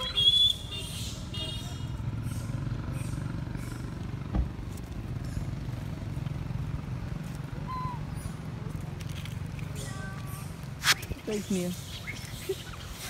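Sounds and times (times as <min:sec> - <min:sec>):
engine idling: 0:00.0 - 0:11.8
thump: 0:04.3 - 0:04.6.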